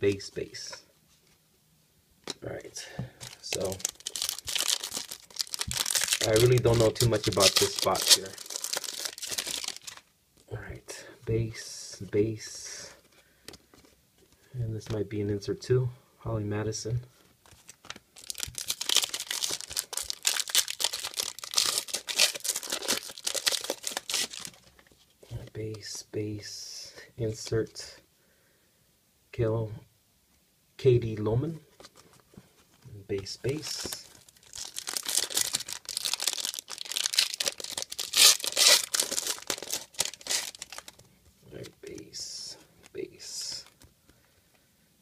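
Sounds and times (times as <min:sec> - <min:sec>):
foil wrapper tearing and crinkling: 0:03.2 - 0:10.1, 0:17.5 - 0:24.7, 0:33.9 - 0:41.1.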